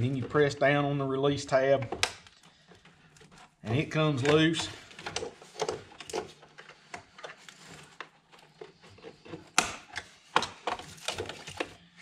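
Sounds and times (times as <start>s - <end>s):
plastic connectors clicking and snapping: 1.8s - 2.5s.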